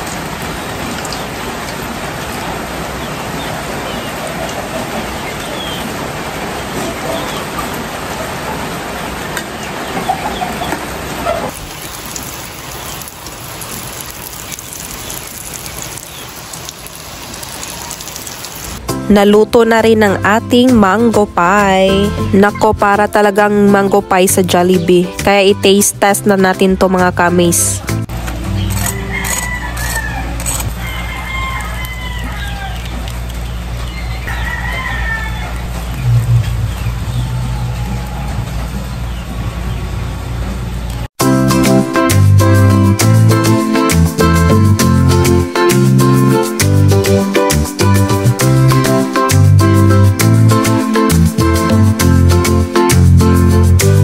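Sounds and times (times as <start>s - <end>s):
birds calling: 2.3s - 18.8s, 28.3s - 30.4s, 31.1s - 41.1s
chickens clucking: 3.0s - 11.6s
food deep-frying in hot oil: 11.5s - 18.8s.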